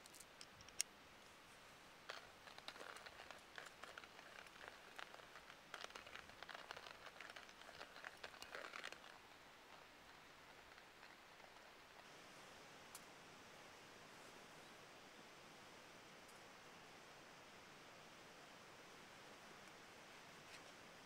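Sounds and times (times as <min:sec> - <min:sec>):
hand coffee grinder crunching beans: 0:02.1 - 0:09.9.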